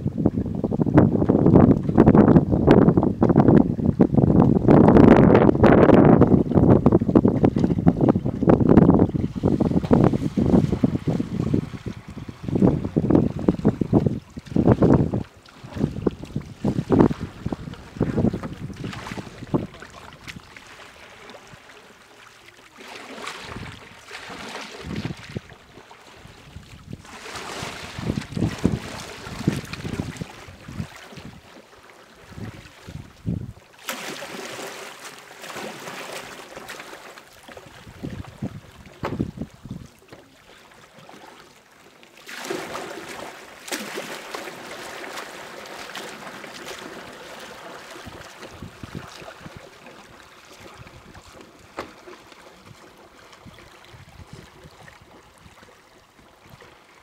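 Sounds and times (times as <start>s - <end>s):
wind gusting on microphone: 0.0s - 20.5s, 24.7s - 25.5s, 26.2s - 31.4s, 32.3s - 33.6s, 37.6s - 39.9s, 48.0s - 49.6s
water lapping and splashing: 0.0s - 57.0s.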